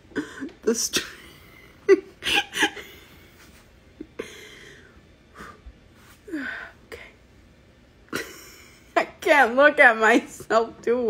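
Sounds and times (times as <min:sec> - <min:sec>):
woman breathing: 0:01.3 - 0:07.2.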